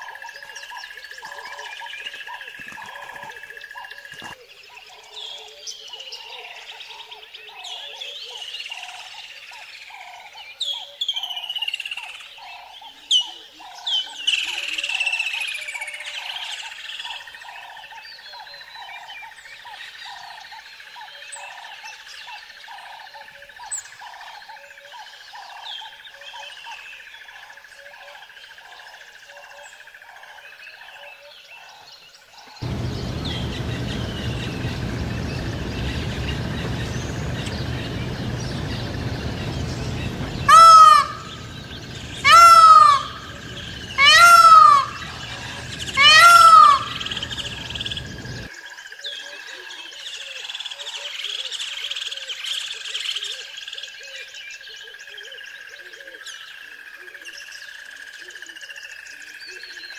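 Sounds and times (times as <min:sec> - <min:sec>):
hiss with low hum: 0:32.6 - 0:48.5
peacock wailing calls: 0:32.6 - 0:48.5
small birds chirping: 0:32.6 - 0:48.5.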